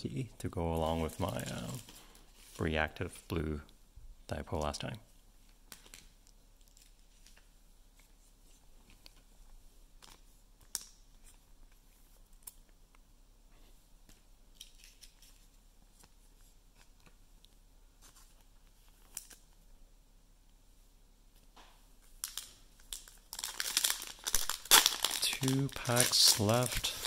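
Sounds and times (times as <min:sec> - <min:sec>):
cards and foil packs clicking: 0:22.2 - 0:27.0.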